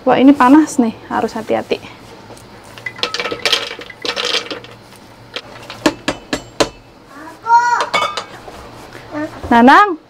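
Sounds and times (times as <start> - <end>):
food rattling into plastic jug: 2.9 - 5.8.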